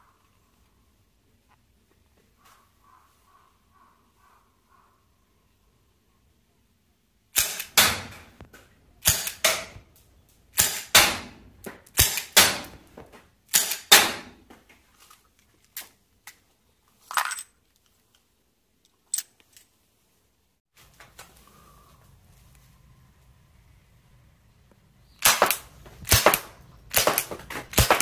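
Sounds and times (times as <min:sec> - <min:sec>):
gas revolver shots: 0:07.4 - 0:08.2, 0:09.0 - 0:09.8, 0:10.6 - 0:11.3, 0:11.9 - 0:12.8, 0:13.5 - 0:14.3, 0:25.2 - 0:28.0.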